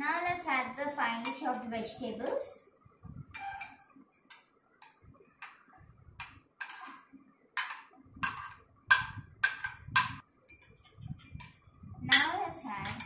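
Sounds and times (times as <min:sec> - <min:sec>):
metal spoon scraping a plate: 0:03.3 - 0:04.4, 0:06.2 - 0:13.0.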